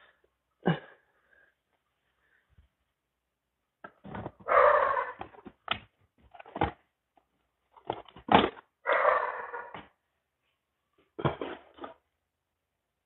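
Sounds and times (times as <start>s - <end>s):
objects knocking and clattering: 3.8s - 4.5s, 5.2s - 8.7s, 11.0s - 12.1s.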